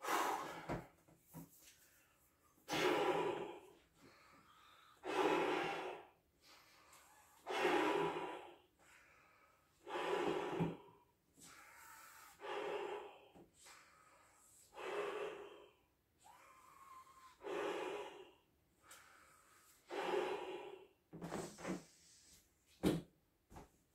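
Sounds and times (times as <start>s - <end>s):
intake of breath: 0.0s - 1.0s, 1.9s - 22.5s
blowing into a balloon: 2.7s - 3.4s, 5.0s - 6.0s, 7.4s - 8.5s, 19.8s - 22.3s.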